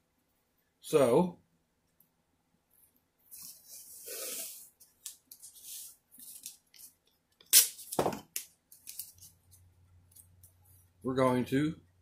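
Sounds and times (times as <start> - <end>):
tape ripping off roll: 7.5 - 8.4.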